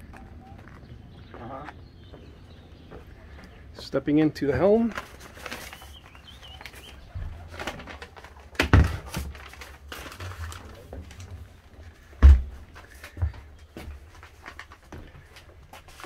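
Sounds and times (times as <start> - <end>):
footsteps: 0.0 - 4.0
bird chirp: 0.0 - 7.7.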